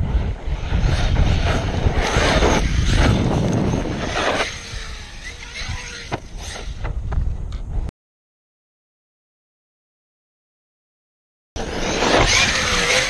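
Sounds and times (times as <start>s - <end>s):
wind rumble on microphone: 0.0s - 7.9s
rc truck electric motor surging: 0.1s - 6.9s, 11.6s - 13.0s.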